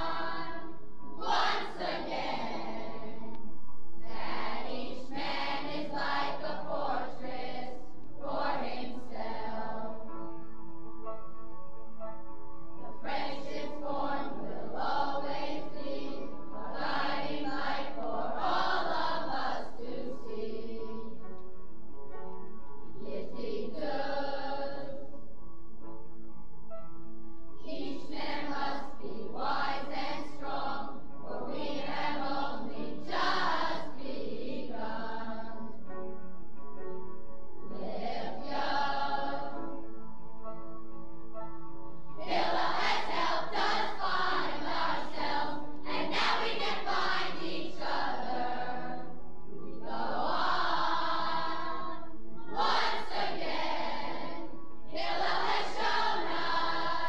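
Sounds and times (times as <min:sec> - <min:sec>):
group singing in chorus: 0:00.0 - 0:03.3, 0:04.1 - 0:10.0, 0:12.8 - 0:21.2, 0:23.0 - 0:25.0, 0:27.7 - 0:35.7, 0:37.7 - 0:39.6, 0:42.2 - 0:49.1, 0:49.7 - 0:57.0.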